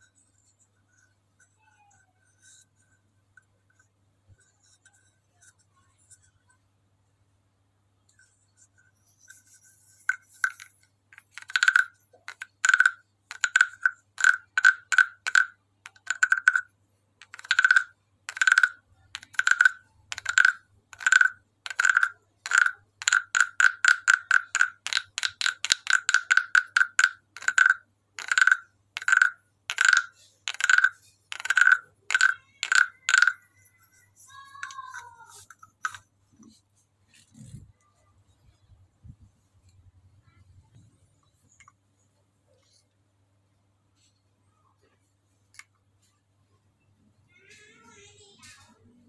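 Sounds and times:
wooden frog guiro croaking: 9.3s - 37.7s.

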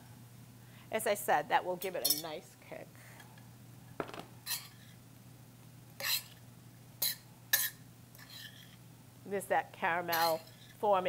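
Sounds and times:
utensil scraping a metal skillet: 4.5s - 5.0s, 6.0s - 6.4s, 7.0s - 8.8s, 10.1s - 10.8s.

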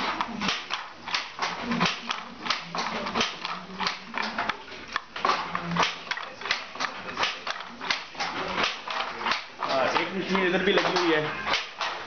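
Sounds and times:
wooden handloom clacking: 0.0s - 12.0s.

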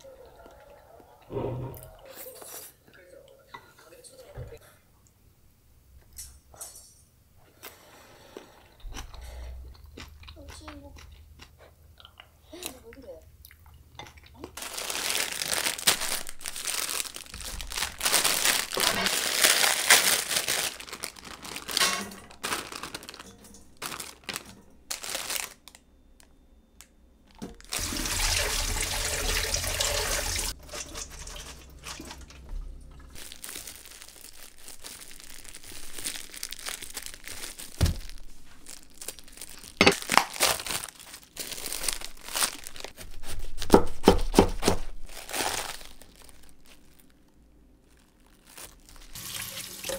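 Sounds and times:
crinkling and rustling handling: 14.1s - 27.8s, 30.5s - 49.6s
plastic wrap crinkling: 14.4s - 29.0s, 30.2s - 49.9s
tap water running into colander: 27.4s - 33.2s, 49.1s - 49.9s.

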